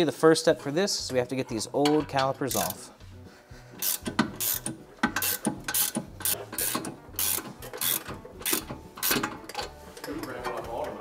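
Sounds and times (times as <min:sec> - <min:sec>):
hand ratchet clicking: 0:02.5 - 0:02.8, 0:03.8 - 0:09.7.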